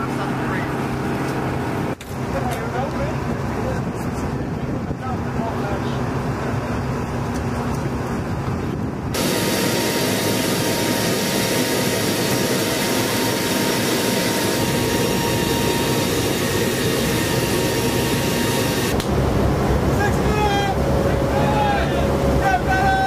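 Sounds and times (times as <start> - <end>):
aircraft engine and airflow noise: 0.0 - 23.0
wind: 0.0 - 23.0
steady tones: 9.2 - 23.0.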